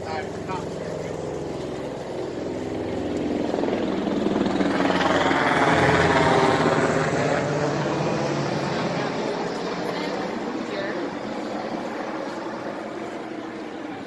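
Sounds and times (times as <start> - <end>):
helicopter passing overhead: 0.0 - 14.0.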